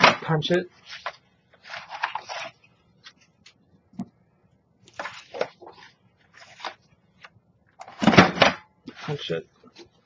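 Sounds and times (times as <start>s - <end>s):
paper rustling and sliding: 0.0s - 3.3s, 4.9s - 6.9s.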